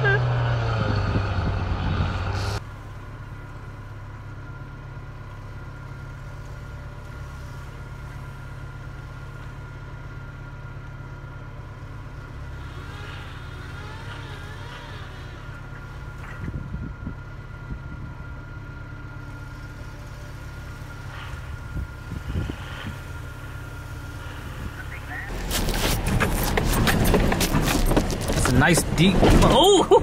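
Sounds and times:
truck engine revving: 0.0 - 2.6, 11.8 - 18.0, 19.2 - 30.0
pickup engine running low: 0.0 - 30.0
tyres spinning in snow: 0.0 - 30.0.

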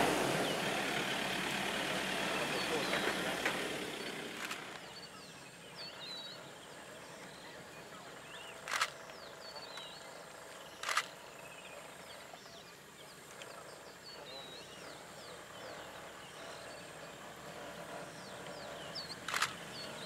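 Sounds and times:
faint bird chirping: 2.2 - 20.0
sharp cracks: 4.3 - 4.9, 8.6 - 9.2, 10.8 - 11.2, 19.2 - 19.6.

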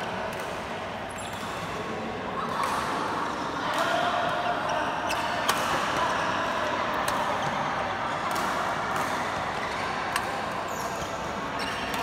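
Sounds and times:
sports hall din: 0.0 - 12.0
racket hitting shuttlecock: 0.2 - 1.7, 7.0 - 10.6.

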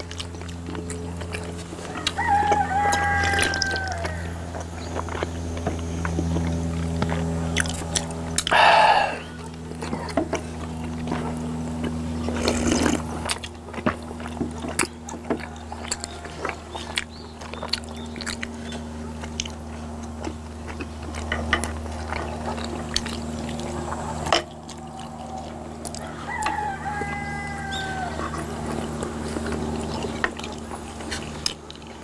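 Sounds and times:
chewing: 0.0 - 32.0
steady low hum: 0.0 - 32.0
drawn-out animal call: 1.0 - 7.6, 8.3 - 32.0
slurping sip: 8.4 - 9.4, 12.3 - 13.1.

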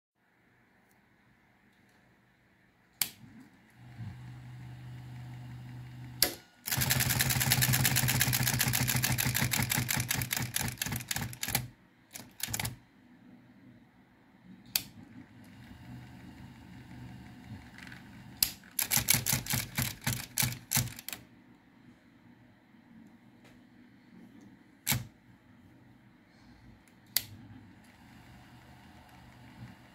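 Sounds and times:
typewriter motor humming: 4.3 - 12.8, 14.8 - 21.2
typewriter switch click: 24.9 - 25.1.

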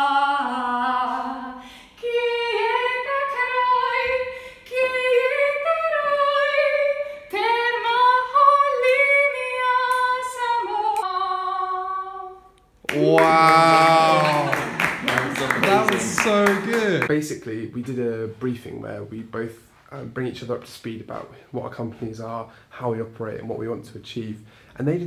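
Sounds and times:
woman singing unaccompanied: 0.0 - 12.5.

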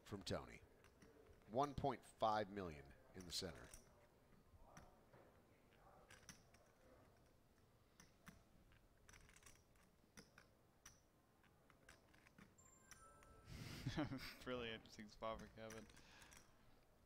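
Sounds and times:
clay poker chips clicking: 0.7 - 1.5, 5.7 - 13.4, 14.6 - 16.9.

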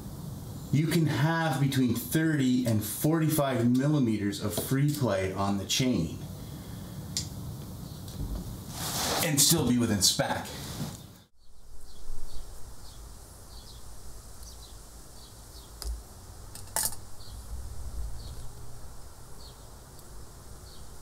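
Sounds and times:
low steady rumble: 11.4 - 21.0.

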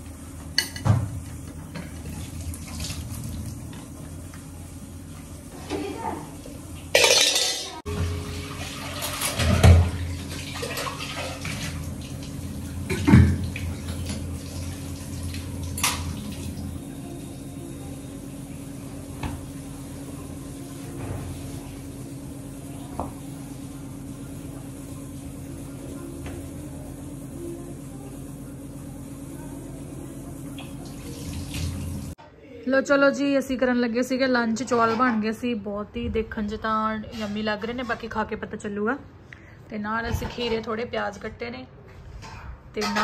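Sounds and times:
pots and dishes clattering in sink: 0.5 - 3.9, 5.6 - 12.1, 12.8 - 16.3, 42.1 - 43.0
tap water running: 0.6 - 17.2, 30.4 - 32.2.

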